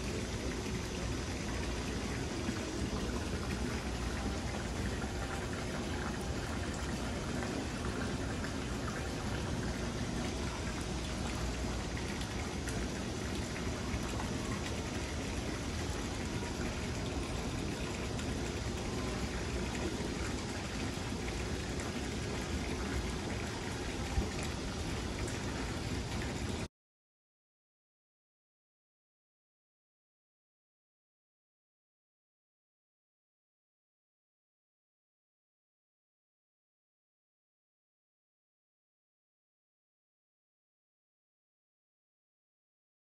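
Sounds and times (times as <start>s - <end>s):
rushing water: 0.0s - 26.7s.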